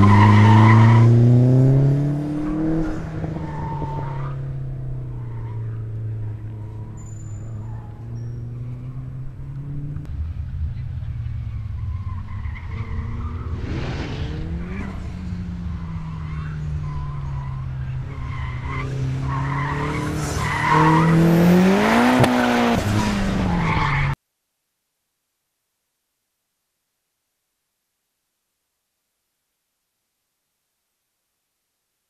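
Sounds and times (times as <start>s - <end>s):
car engine revving: 0.0s - 24.2s
tyres squealing: 5.2s - 9.1s.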